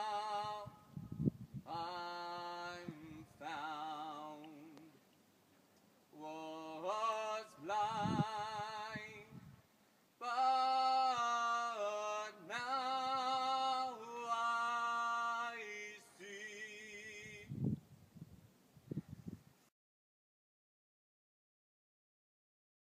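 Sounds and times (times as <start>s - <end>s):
man singing with vibrato: 0.0s - 5.1s, 6.1s - 9.5s, 10.2s - 17.6s.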